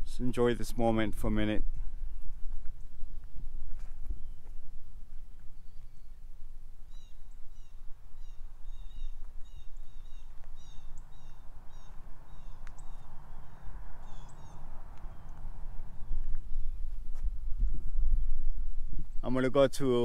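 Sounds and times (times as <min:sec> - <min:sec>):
low background rumble: 0:01.8 - 0:19.3
bird chirping: 0:05.3 - 0:17.0.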